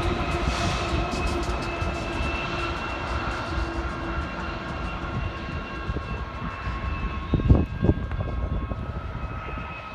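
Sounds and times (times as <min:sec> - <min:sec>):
diesel locomotive rumble: 0:00.0 - 0:09.9
high whining tones: 0:00.0 - 0:09.9
train wheels on rails: 0:00.0 - 0:09.9.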